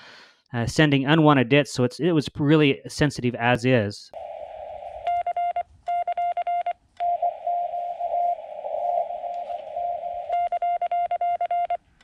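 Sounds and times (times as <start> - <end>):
radio receiver hiss: 4.2 - 5.5, 7.0 - 10.5
morse code tone: 4.2 - 11.8
faint keyed tone: 7.0 - 11.7.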